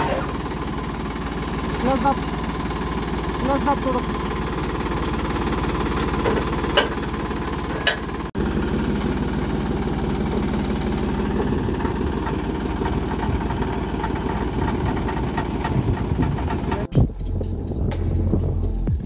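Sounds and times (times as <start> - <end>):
tractor diesel engine idling: 0.0 - 19.0.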